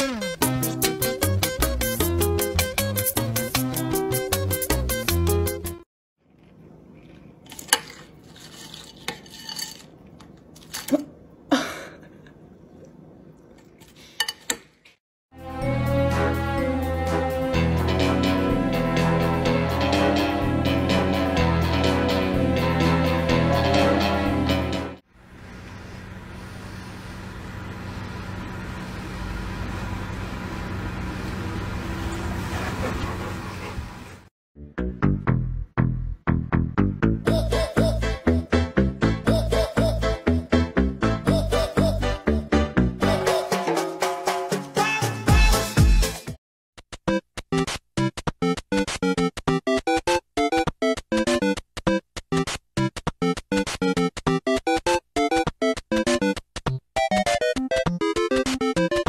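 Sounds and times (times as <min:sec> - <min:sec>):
steady low hum: 0:25.2 - 0:33.6.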